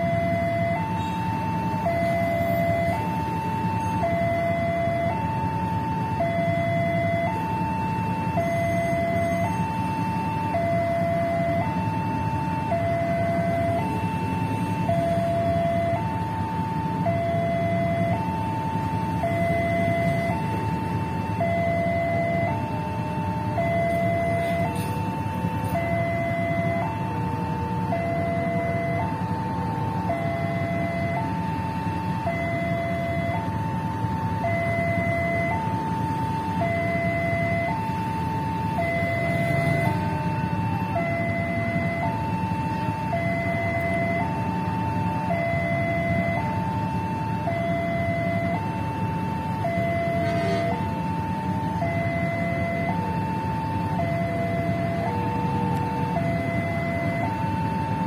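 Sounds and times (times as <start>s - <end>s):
two-tone crossing alarm chime: 0.0s - 27.1s, 27.8s - 33.6s, 34.3s - 51.0s, 51.7s - 58.0s.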